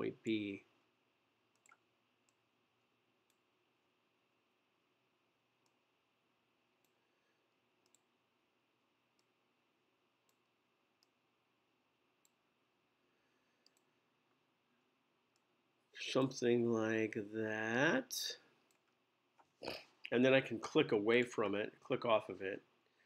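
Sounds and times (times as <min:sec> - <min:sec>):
faint computer mouse clicks: 0:01.5 - 0:02.4, 0:07.8 - 0:08.1, 0:13.6 - 0:13.9.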